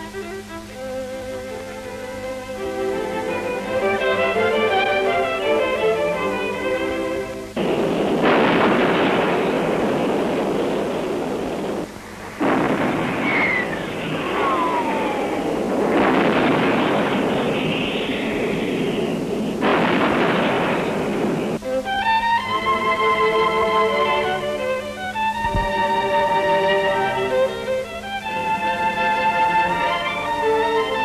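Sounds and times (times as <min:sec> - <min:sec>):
rumble of explosions: 0:02.2 - 0:31.0
falling bomb whistle: 0:12.4 - 0:23.1.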